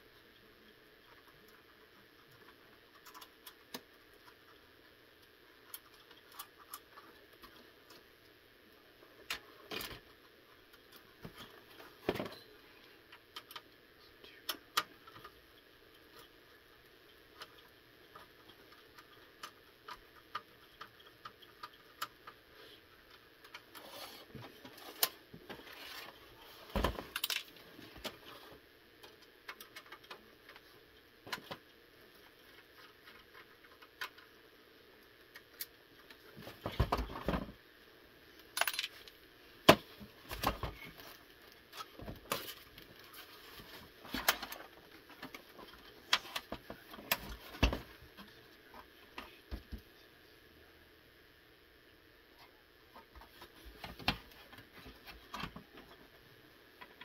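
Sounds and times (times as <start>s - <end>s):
plastic console parts clicking: 0.4s - 8.1s, 9.1s - 28.4s, 29.0s - 37.6s, 38.4s - 49.9s.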